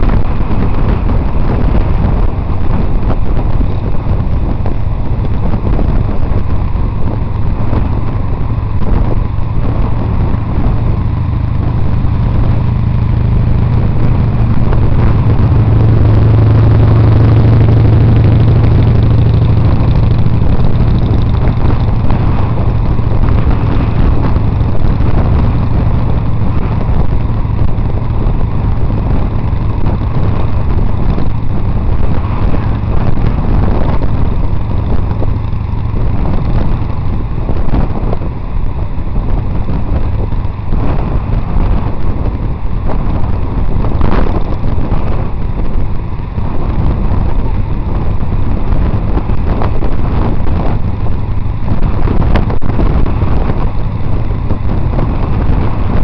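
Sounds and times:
road noise: 0.0s - 56.0s
wind rushing over microphone: 0.0s - 56.0s.

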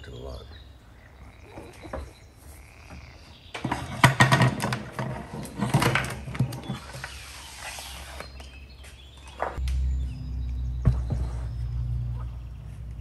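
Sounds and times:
sliding hiss on wood: 6.8s - 8.4s.

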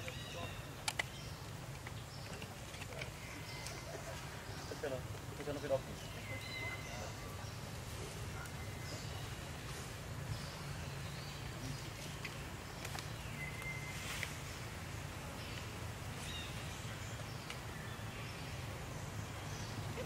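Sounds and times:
faint clicks: 0.8s - 3.8s.

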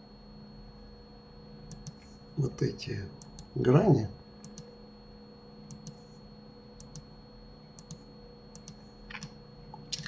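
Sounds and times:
faint steady hum: 0.0s - 10.0s
computer mouse clicking: 1.7s - 2.1s, 3.2s - 3.5s, 4.4s - 4.7s, 5.7s - 6.0s, 6.8s - 7.1s, 7.8s - 9.4s.

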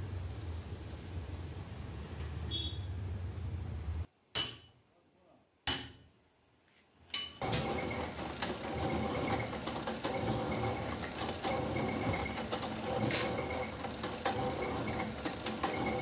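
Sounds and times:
lathe running with faint whine: 7.4s - 16.0s.

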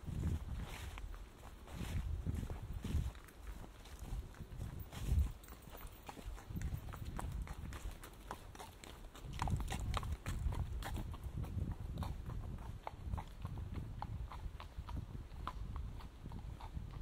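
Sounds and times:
footsteps on wet leaves: 0.6s - 5.8s.

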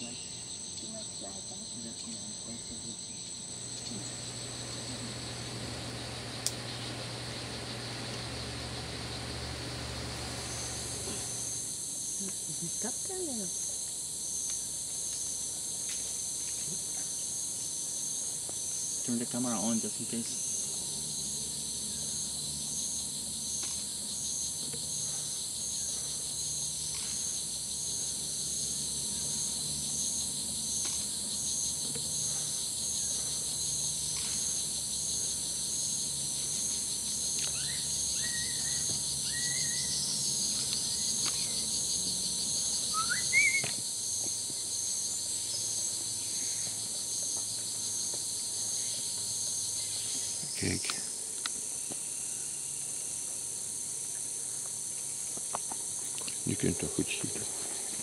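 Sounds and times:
insect chorus buzzing: 0.0s - 58.0s
rising bird chirps: 37.5s - 40.1s, 42.7s - 43.8s.

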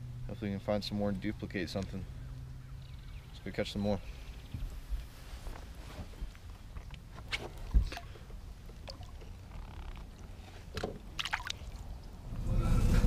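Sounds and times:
water splashing and sloshing: 5.2s - 12.2s.

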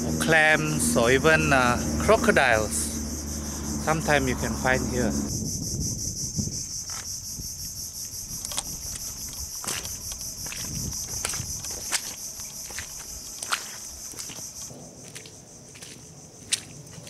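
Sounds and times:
high-pitched insect chorus: 0.0s - 17.0s
sharp clicks: 8.4s - 10.3s.

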